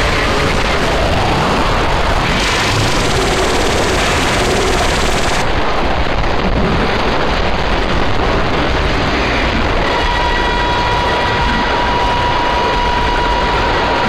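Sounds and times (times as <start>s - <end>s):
harsh digital noise music: 0.0s - 5.5s.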